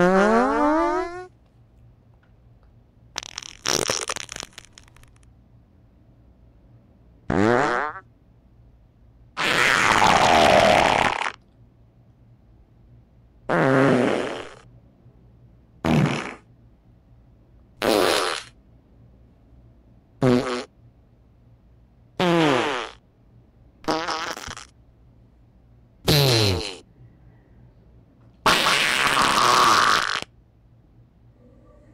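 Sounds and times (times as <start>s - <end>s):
fart sounds: 0.0s - 1.3s, 3.2s - 5.3s, 7.3s - 8.1s, 9.4s - 11.4s, 13.5s - 14.7s, 15.8s - 16.5s, 17.8s - 18.6s, 20.2s - 20.7s, 22.2s - 23.0s, 23.8s - 24.8s, 26.0s - 26.9s, 28.4s - 30.3s.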